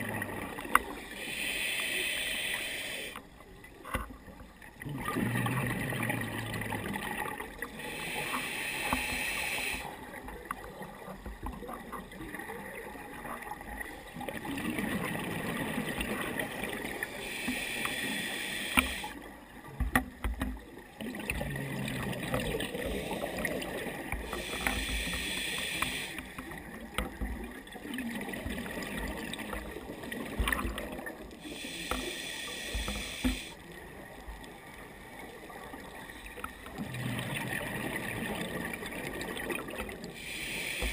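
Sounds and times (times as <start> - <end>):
water noise: 0.0 - 40.9
bubbling exhalation underwater: 4.8 - 7.4.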